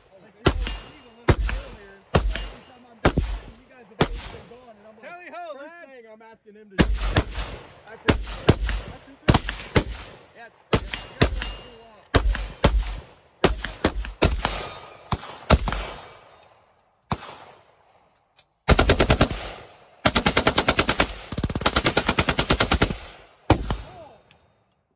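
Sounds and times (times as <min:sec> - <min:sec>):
gunshots with echo: 0:00.4 - 0:04.6, 0:06.8 - 0:16.4, 0:17.1 - 0:17.7.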